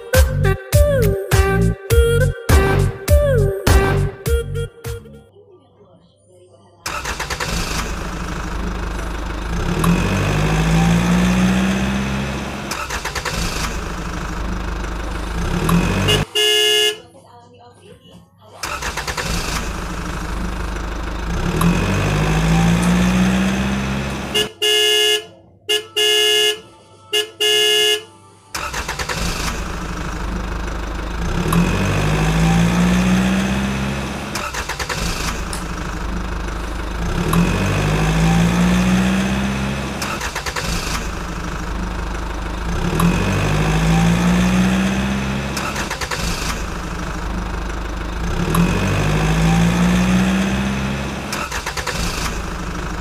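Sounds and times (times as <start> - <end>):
loud horn beeps: 3.8 - 5.2, 10.2 - 12.1, 15.8 - 17.1, 22.3 - 28.9, 37.6 - 40.6, 43.4 - 44.8, 48.9 - 50.4
recorded toy engine sound revving: 6.9 - 16.3, 18.6 - 24.5, 28.6 - 53.0.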